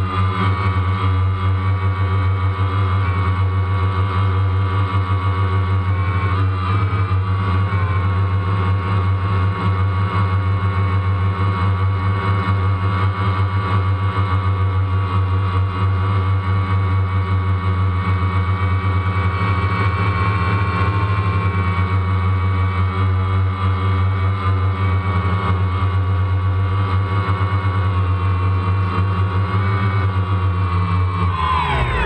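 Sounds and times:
drone propellers buzzing: 30.0s - 32.0s.

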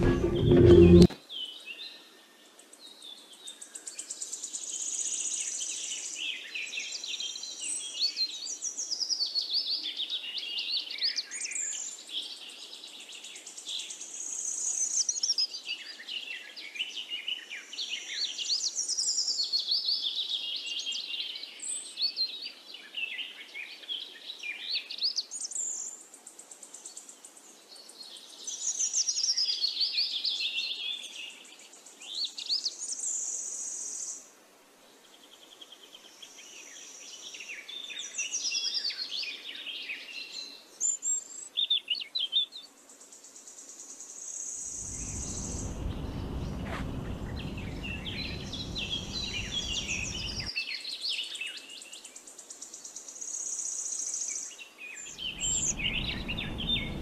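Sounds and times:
high steady buzzing note: 0.0s - 1.2s
small birds chirping: 41.0s - 57.0s.

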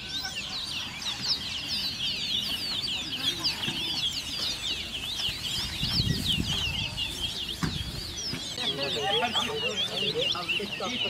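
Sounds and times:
songbirds chirping and trilling: 0.0s - 11.0s
low thumps: 7.5s - 8.6s.

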